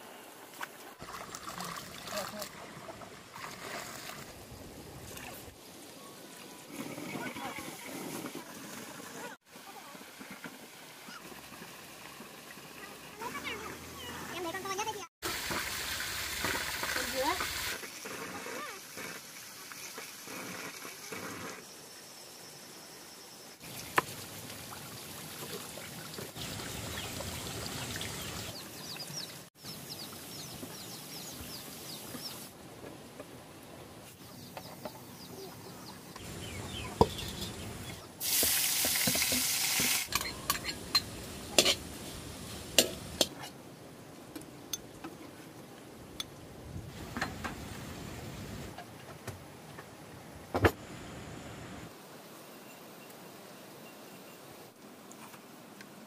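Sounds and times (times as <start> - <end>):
food sizzling in a pan: 38.2 - 43.3.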